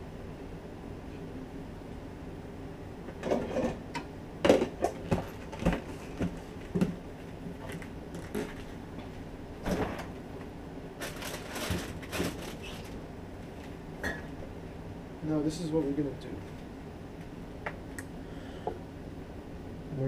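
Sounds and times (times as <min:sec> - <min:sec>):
low background noise: 0:00.0 - 0:20.0
kitchen items knocking and clattering: 0:04.4 - 0:07.0.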